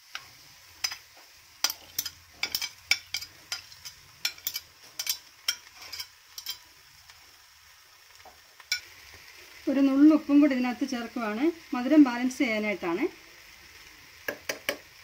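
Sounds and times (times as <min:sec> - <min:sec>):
faint sizzle in pan: 0:00.0 - 0:15.0
metal spoon scraping china plate: 0:01.7 - 0:06.6.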